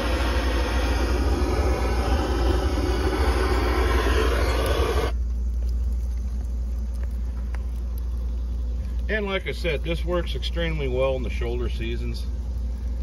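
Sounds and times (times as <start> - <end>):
propane torch hissing: 0.0 - 5.2
furnace blower humming: 0.0 - 5.3.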